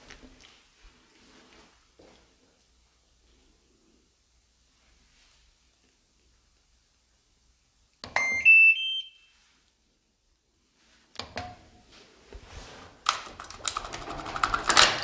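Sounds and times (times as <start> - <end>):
short beep: 8.1 - 9.4
washing machine power-on chime: 8.2 - 9.3
washing machine clicks: 13.1 - 15.0
washing machine rattling clatter: 13.2 - 15.0.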